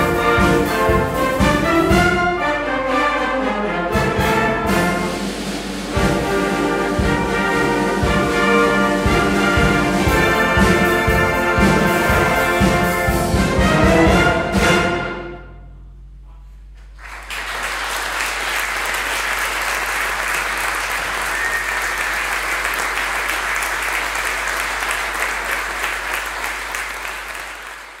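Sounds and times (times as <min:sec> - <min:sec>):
audience applause: 0:16.8 - 0:28.0.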